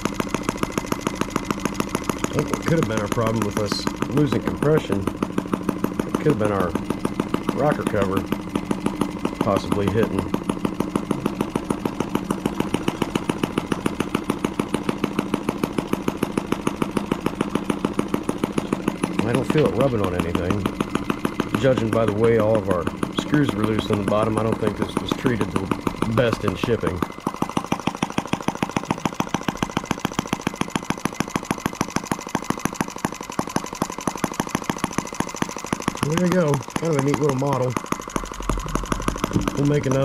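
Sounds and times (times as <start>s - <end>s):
model engine running: 0.0s - 40.0s.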